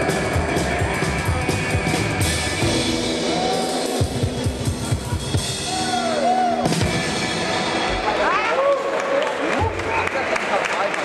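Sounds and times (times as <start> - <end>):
live rockabilly band: 0.0 - 5.7
drum kit: 0.0 - 8.4.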